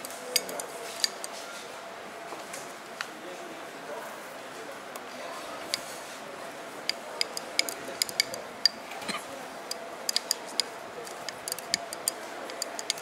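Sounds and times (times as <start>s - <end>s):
metal rod tapping glass bowl: 7.2s - 9.2s.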